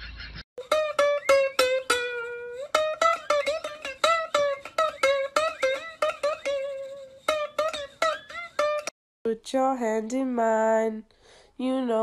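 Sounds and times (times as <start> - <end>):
plucked string instrument melody: 0.6 - 9.0.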